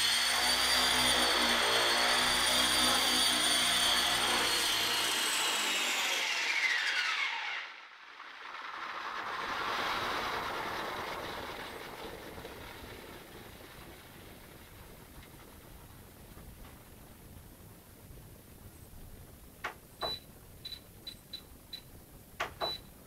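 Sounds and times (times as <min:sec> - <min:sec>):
model helicopter motor whine: 0:00.0 - 0:07.8.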